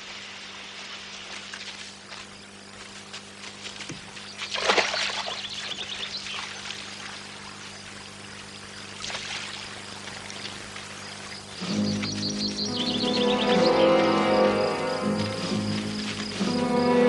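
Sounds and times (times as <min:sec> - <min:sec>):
stream running over rocks: 0:00.0 - 0:13.6
feet splashing through water: 0:00.8 - 0:13.5, 0:14.8 - 0:17.0.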